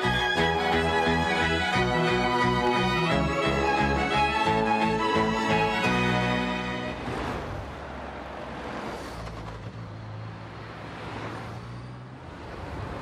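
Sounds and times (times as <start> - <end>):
music: 0.0 - 7.0
cars passing: 0.0 - 13.0.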